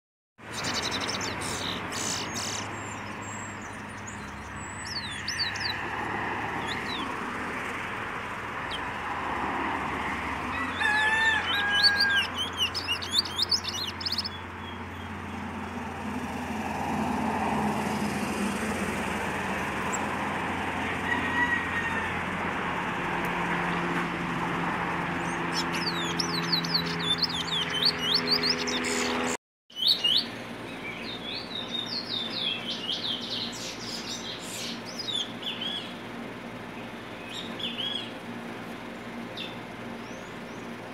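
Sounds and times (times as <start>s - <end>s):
road traffic noise: 0.4s - 40.9s
bird chirping and whistling: 0.5s - 5.8s, 11.5s - 14.4s, 25.4s - 29.2s.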